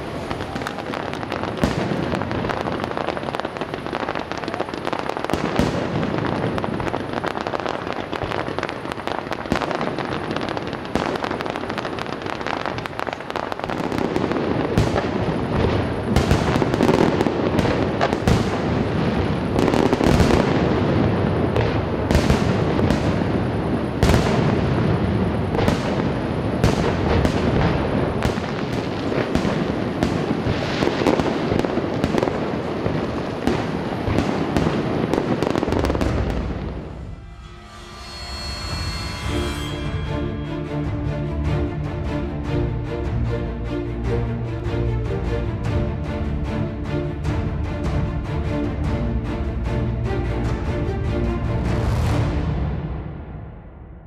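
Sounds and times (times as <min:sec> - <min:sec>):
fireworks bangs: 0:00.0 - 0:41.1
fireworks crackle: 0:00.0 - 0:41.1.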